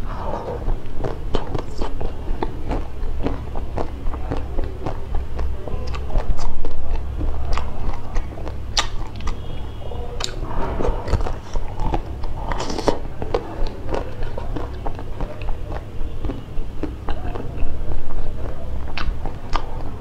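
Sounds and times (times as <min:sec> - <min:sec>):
low rumble: 0:00.0 - 0:20.0
person chewing: 0:00.0 - 0:20.0
mouth clicks and wet smacks: 0:00.6 - 0:10.4, 0:11.0 - 0:20.0.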